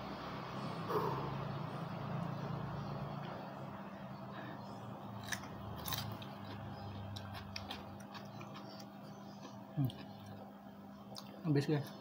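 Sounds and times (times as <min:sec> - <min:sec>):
person chewing food: 0:05.2 - 0:11.4.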